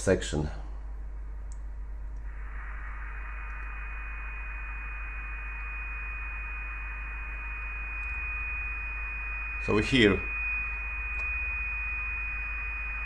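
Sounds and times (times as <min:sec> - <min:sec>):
radio receiver hiss: 0:02.1 - 0:08.6
high whistle-like tone: 0:02.2 - 0:13.0.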